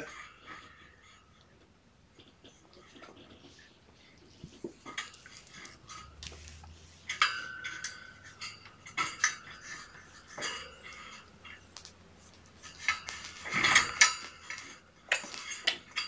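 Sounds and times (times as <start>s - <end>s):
metal clinks and rattles: 4.8s - 16.0s.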